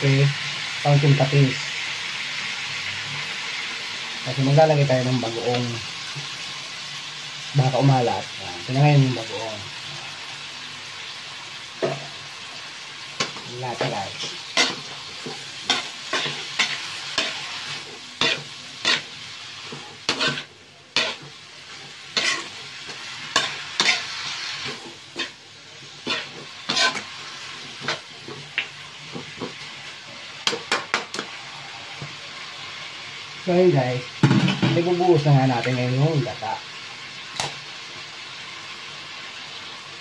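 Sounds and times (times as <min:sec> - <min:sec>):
frying sizzle: 0:00.0 - 0:40.0
metal spatula scraping wok: 0:13.1 - 0:31.8.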